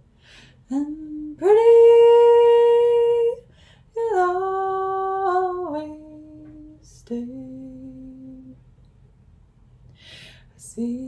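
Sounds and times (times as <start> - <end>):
woman singing a cappella: 0.6 - 8.6, 10.4 - 11.0.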